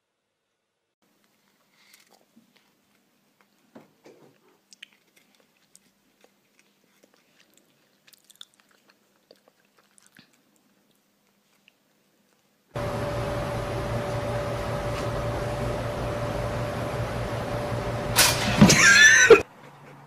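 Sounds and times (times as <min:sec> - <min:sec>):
cat chewing crunchy treat: 0:01.4 - 0:03.6, 0:04.4 - 0:12.6.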